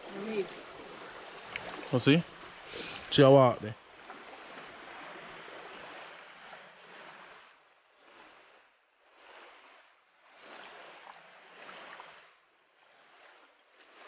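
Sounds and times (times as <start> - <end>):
stream water sloshing: 0.0 - 14.0.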